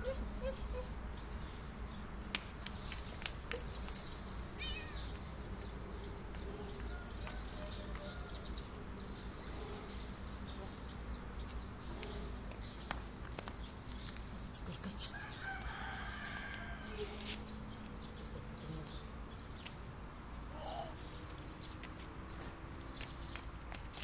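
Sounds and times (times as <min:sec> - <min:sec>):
rooster crowing: 0:15.2 - 0:17.2.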